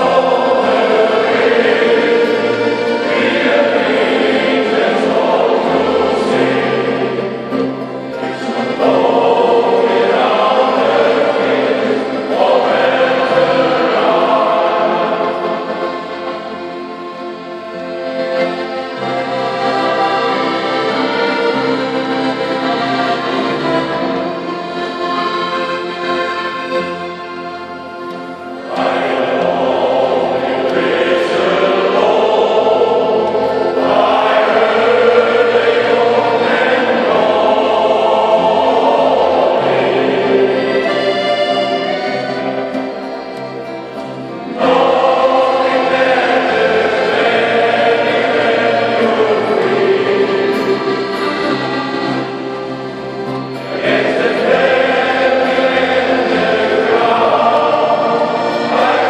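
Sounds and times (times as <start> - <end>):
accordion: 0.0 - 59.0
choir singing: 0.0 - 59.0.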